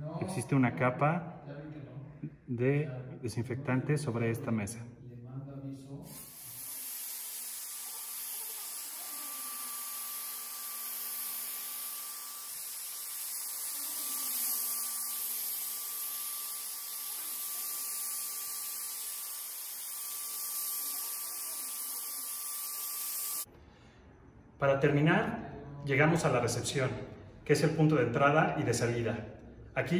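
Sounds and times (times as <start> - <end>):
sprayer motor hum: 6.1 - 23.4.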